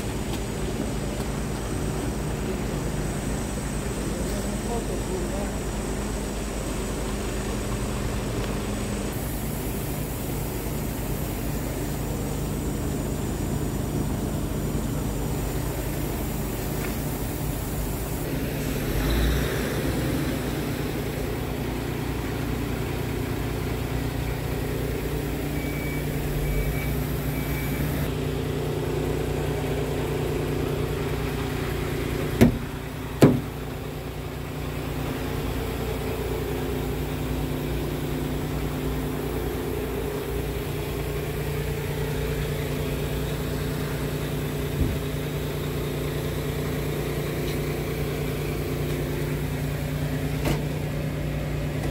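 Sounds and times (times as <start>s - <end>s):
diesel truck engine idling: 0.0s - 51.9s
sharp knocks: 33.2s - 33.5s.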